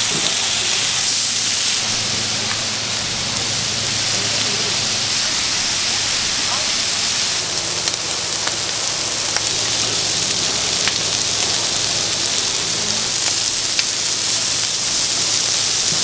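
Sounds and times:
skewers sizzling on griddle: 0:00.0 - 0:16.0.

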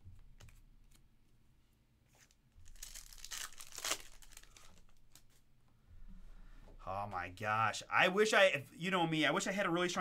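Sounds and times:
plastic wrapper crinkling rip: 0:02.6 - 0:05.4
plastic wrapper handling ticks: 0:02.6 - 0:05.4.

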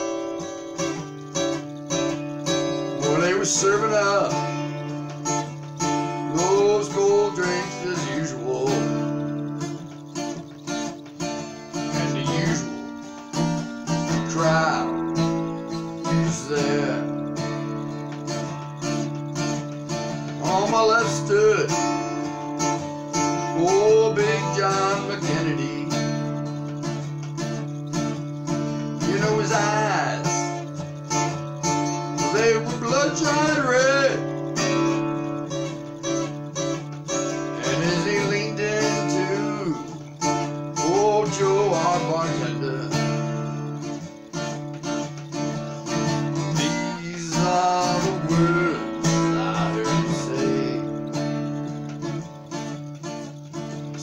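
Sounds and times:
acoustic guitar strumming: 0:00.0 - 0:54.0
person vocalizing wordlessly: 0:05.6 - 0:10.2, 0:11.8 - 0:13.0, 0:46.6 - 0:51.0.

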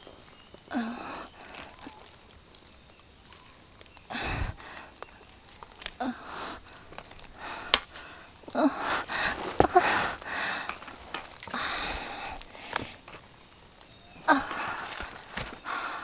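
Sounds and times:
person breathing hard: 0:00.7 - 0:02.0, 0:04.1 - 0:05.2, 0:05.9 - 0:13.0, 0:14.3 - 0:16.0
hand and camera knocking roots: 0:04.1 - 0:13.3, 0:14.2 - 0:15.8.

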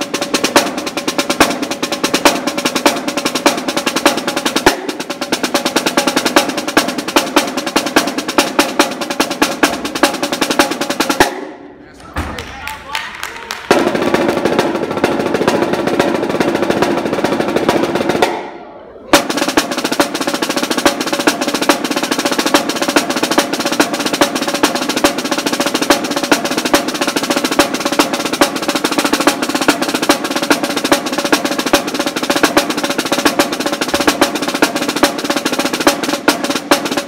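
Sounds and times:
snare drum rolls: 0:00.0 - 0:37.0.

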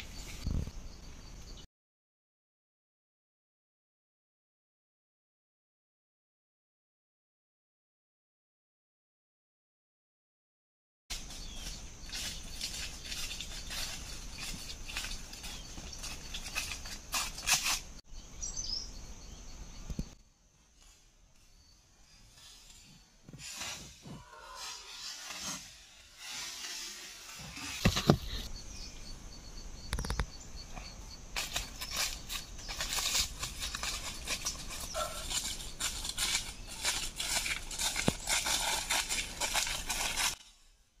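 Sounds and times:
footsteps crunching through dry leaves: 0:11.1 - 0:17.8, 0:31.4 - 0:40.6
bird chirp: 0:11.2 - 0:17.0, 0:18.0 - 0:20.2, 0:27.8 - 0:36.9
steady high hiss: 0:22.1 - 0:30.6.

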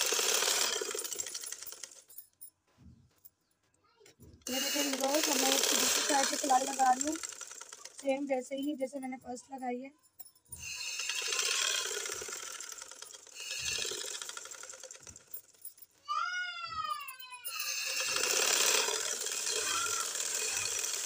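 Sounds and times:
sewing machine stitching: 0:00.0 - 0:02.1, 0:04.4 - 0:08.3, 0:10.6 - 0:15.6, 0:17.5 - 0:21.0
high-pitched cry: 0:16.0 - 0:18.2, 0:19.4 - 0:20.8.

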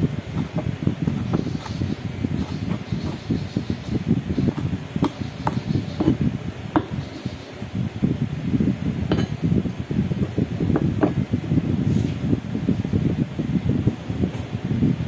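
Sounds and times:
knife chopping herbs on board: 0:00.3 - 0:01.8, 0:02.4 - 0:06.2.

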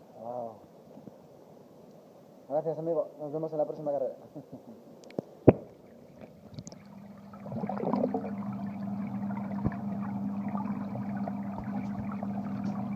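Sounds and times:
steady low hum: 0:05.4 - 0:12.9
water churning and bubbling: 0:05.7 - 0:12.9.

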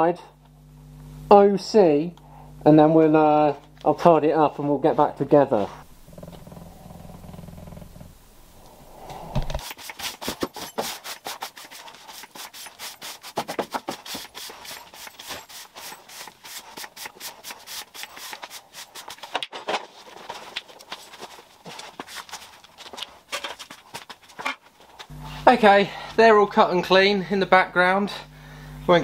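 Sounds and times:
scraping strokes on steel: 0:14.0 - 0:19.2.

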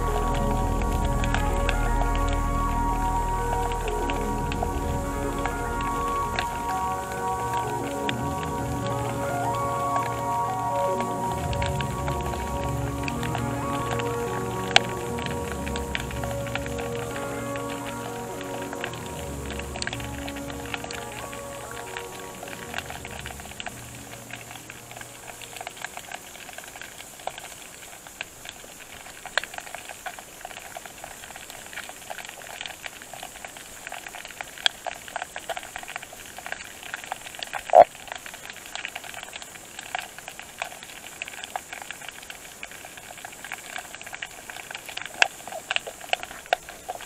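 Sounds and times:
underwater crackling hiss: 0:00.0 - 0:47.0
small clicks and pops: 0:13.0 - 0:47.0.

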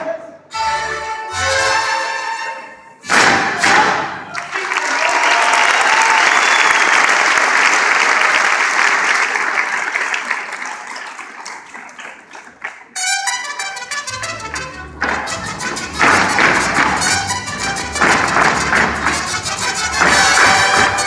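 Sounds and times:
music: 0:00.5 - 0:03.8, 0:13.0 - 0:21.0
audience applauding: 0:03.7 - 0:13.0, 0:14.4 - 0:21.0.

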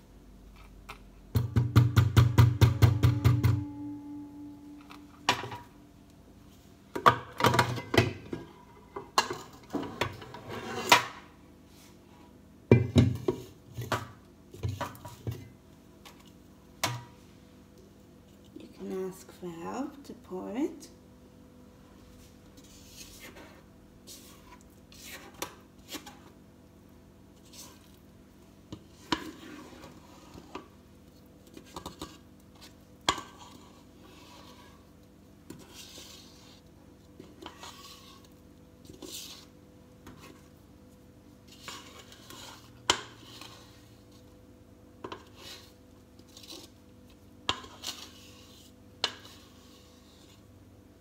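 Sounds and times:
spatula scraping metal bowl: 0:28.7 - 0:30.6, 0:31.6 - 0:34.9, 0:35.5 - 0:39.5, 0:41.5 - 0:44.2, 0:45.0 - 0:46.8, 0:47.5 - 0:50.5.

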